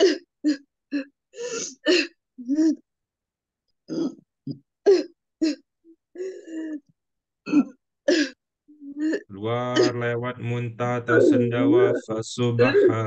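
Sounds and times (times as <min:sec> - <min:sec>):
person coughing and gagging: 0:00.0 - 0:00.6, 0:03.9 - 0:05.6, 0:07.4 - 0:08.4, 0:09.1 - 0:10.1, 0:11.1 - 0:12.0, 0:12.6 - 0:13.0.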